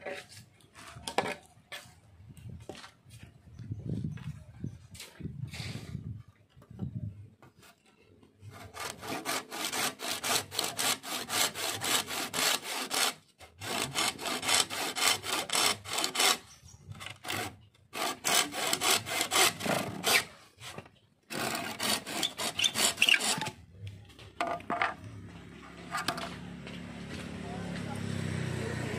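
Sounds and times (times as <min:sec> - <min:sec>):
hand saw cutting bamboo: 0:08.4 - 0:23.6.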